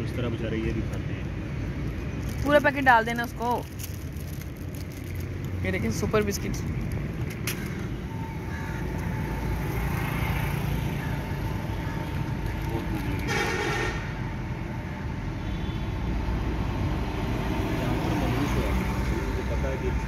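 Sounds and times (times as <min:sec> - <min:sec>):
traffic rumble: 0:00.0 - 0:20.0
vehicle horn toot: 0:13.2 - 0:14.1.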